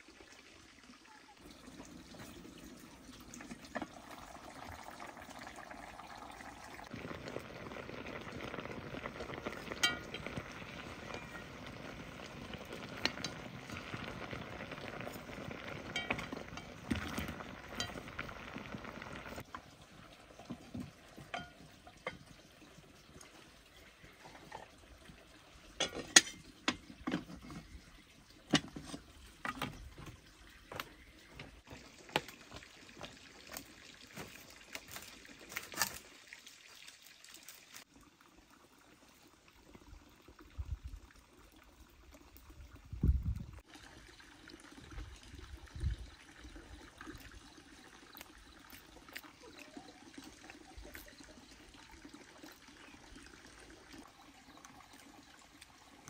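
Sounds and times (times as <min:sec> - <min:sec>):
water bubbling and sloshing: 0:01.4 - 0:36.6.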